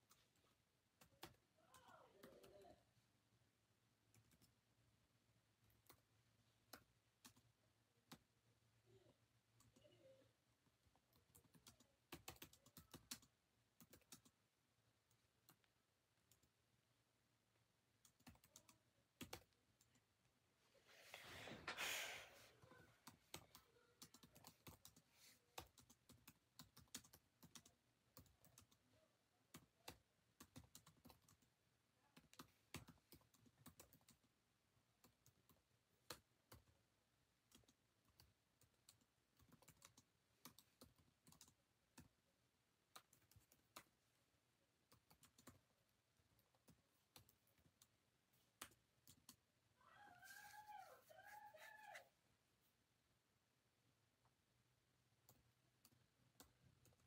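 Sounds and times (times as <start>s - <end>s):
faint clicks and taps: 44.8s - 49.5s.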